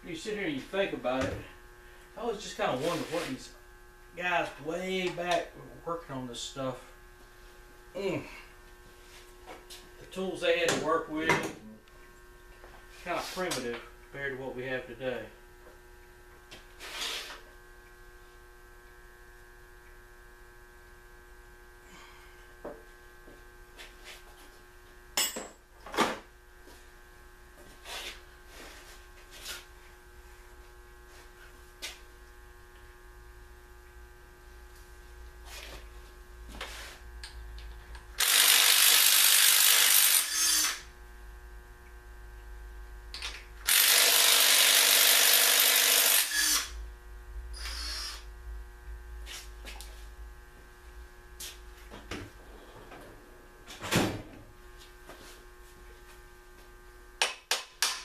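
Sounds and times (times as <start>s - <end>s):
impact wrench running: 38.1s - 40.9s, 43.1s - 46.8s, 47.5s - 48.3s.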